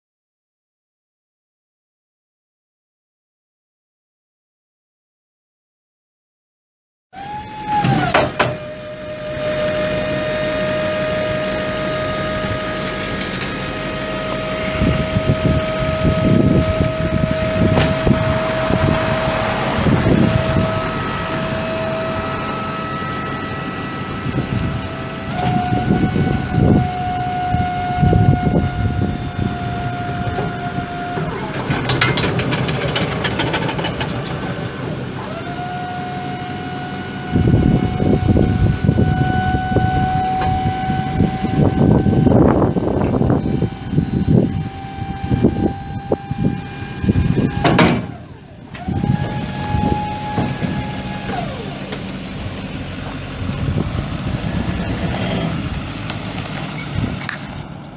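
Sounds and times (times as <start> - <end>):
diesel engine running: 7.2 - 57.9
steady whine: 8.2 - 32.2.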